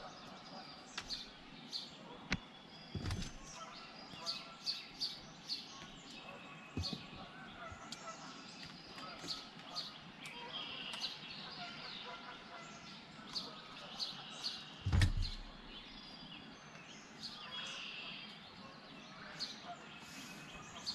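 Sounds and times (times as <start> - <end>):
wild birds chirping: 0.0 - 20.9
dull thump: 3.0 - 3.5, 14.9 - 15.5.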